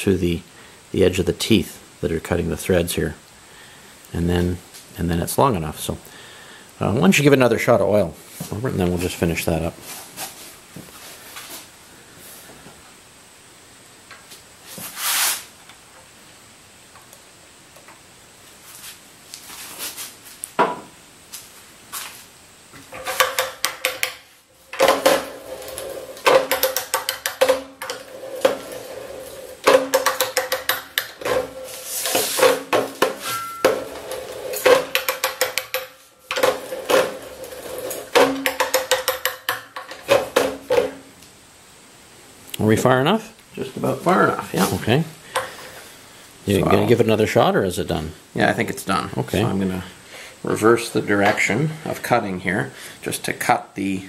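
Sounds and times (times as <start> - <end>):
oil can hiss: 14.8 - 15.5
ratcheting pipe die clicks: 23.0 - 24.2, 26.2 - 28.0, 29.6 - 31.3, 34.6 - 36.4, 38.2 - 40.0
metallic ring: 33.2 - 34.0.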